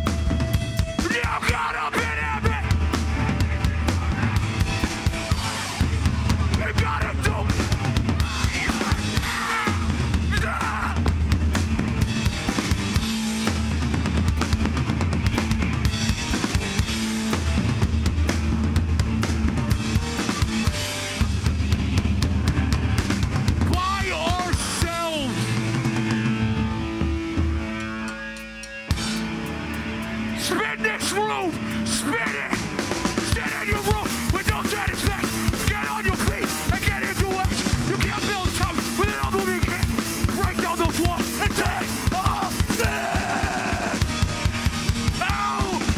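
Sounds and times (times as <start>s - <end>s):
heavy drum beat: 0.0s - 27.8s, 30.5s - 45.9s
distorted guitars: 0.0s - 45.9s
shouted vocals: 1.0s - 11.2s, 33.2s - 44.2s, 45.0s - 45.9s.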